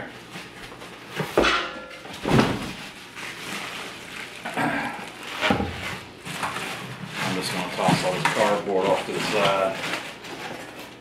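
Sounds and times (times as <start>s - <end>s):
plastic wrap crinkling: 2.6s - 11.0s
cardboard scraping: 5.2s - 10.8s.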